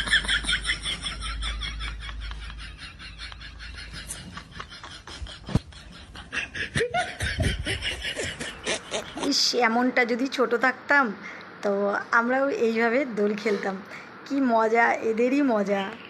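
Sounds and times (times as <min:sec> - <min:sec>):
people laughing: 0:00.0 - 0:09.4.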